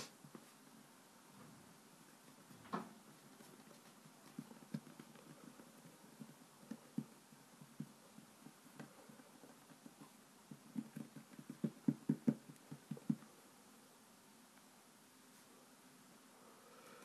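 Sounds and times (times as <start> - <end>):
hands patting play dough: 3.3 - 13.3.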